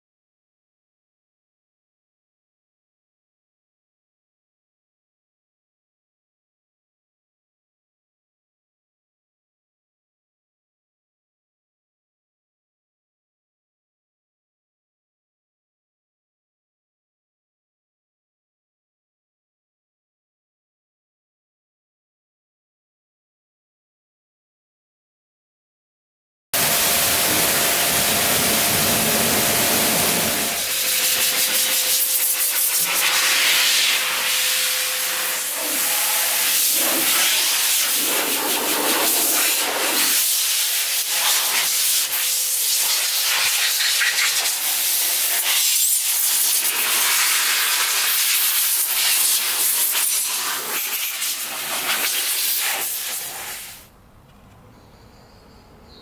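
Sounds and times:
pressure washer spraying water: 26.6s - 53.9s.

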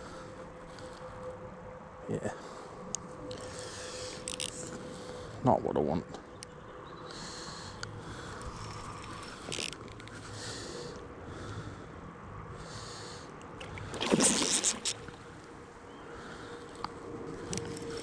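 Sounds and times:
fish thrashing and splashing: 13.6s - 15.3s
water sloshing: 13.6s - 15.3s.

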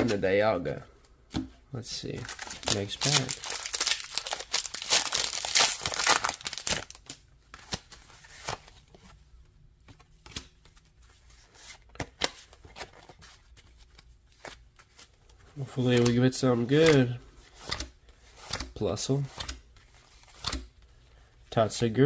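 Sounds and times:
foil wrapper crinkling and tearing: 2.2s - 7.2s.

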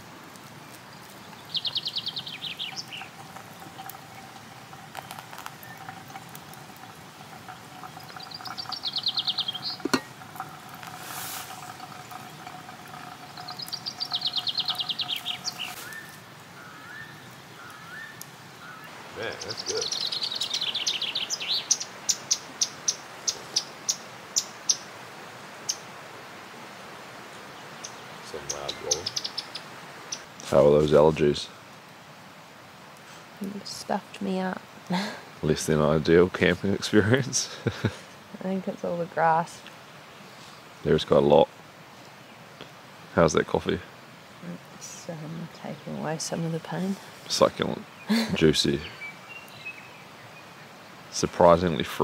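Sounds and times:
water trickling into coffee filter: 0.9s - 16.5s
songbird trilling: 1.3s - 6.9s, 7.7s - 24.8s, 27.8s - 30.3s
sharp high bird chirps: 8.0s - 10.0s, 13.3s - 16.1s.

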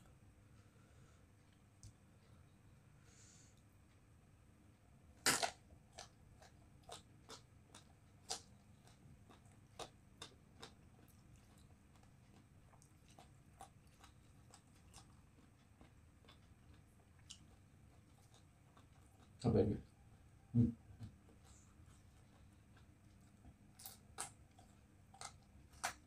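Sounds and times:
crunchy chewing: 5.2s - 20.5s, 21.1s - 26.0s.

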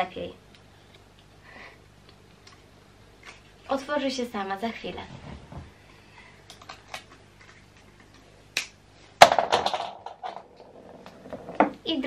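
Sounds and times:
clatter of small knocks: 9.2s - 11.8s.

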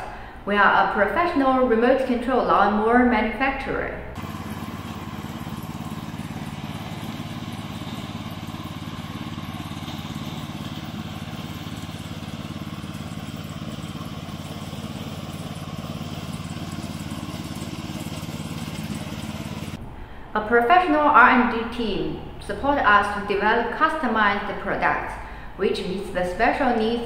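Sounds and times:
small gasoline engine running: 4.2s - 19.8s.

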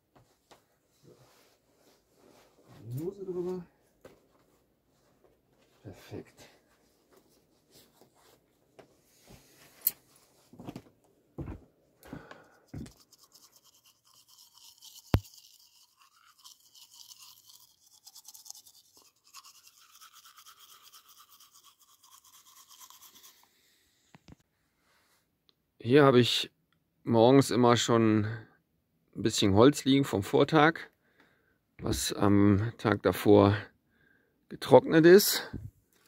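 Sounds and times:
teeth brushing: 12.6s - 23.6s.

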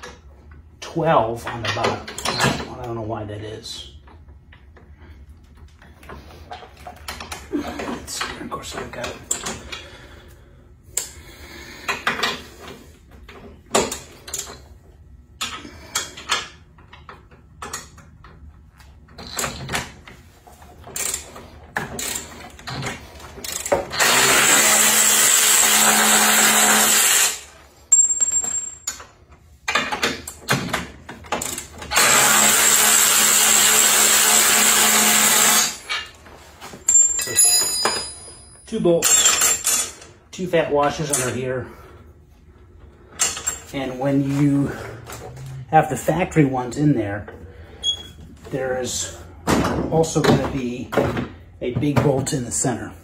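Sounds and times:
tools and metal parts clicking: 20.8s - 24.2s, 36.8s - 40.1s, 43.2s - 43.7s
cordless drill running: 23.9s - 27.4s, 31.9s - 35.8s.

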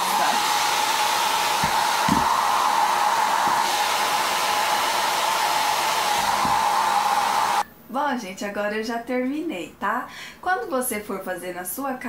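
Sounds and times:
hair dryer running: 0.0s - 7.6s.

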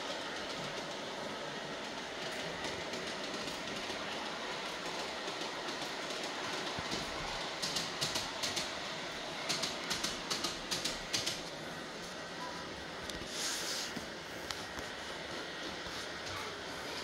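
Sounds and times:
model train rolling rumble: 0.0s - 17.0s
wheels clicking over rail joints: 2.2s - 8.8s, 9.4s - 11.5s.

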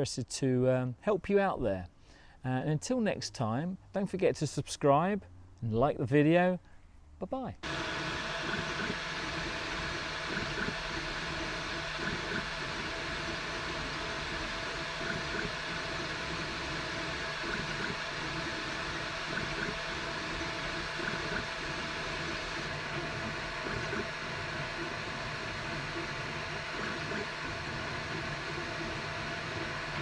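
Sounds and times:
cooling fans hissing: 7.6s - 30.0s
stepper motors whirring: 7.6s - 30.0s.

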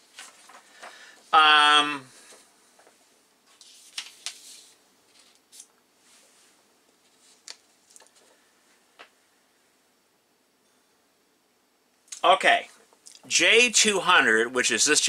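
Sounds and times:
soft rustles: 0.0s - 1.4s, 2.1s - 9.1s.

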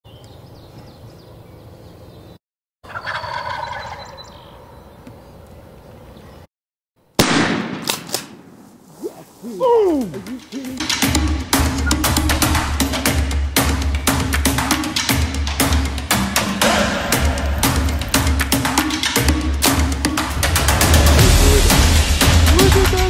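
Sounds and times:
turkeys gobbling: 2.8s - 4.7s, 9.0s - 13.0s.

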